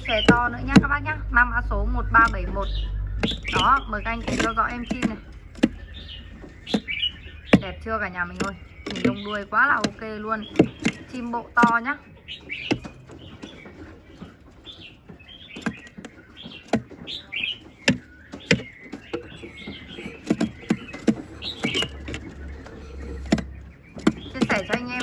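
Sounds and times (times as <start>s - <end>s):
high bird chirps: 0.0s - 25.0s
bird knocking on wooden floor: 3.2s - 5.8s, 6.5s - 7.7s, 8.4s - 11.8s, 15.5s - 25.0s.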